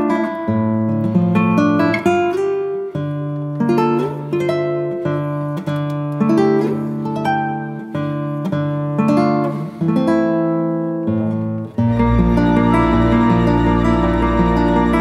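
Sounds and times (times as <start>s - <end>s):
acoustic guitar music: 0.0s - 15.0s.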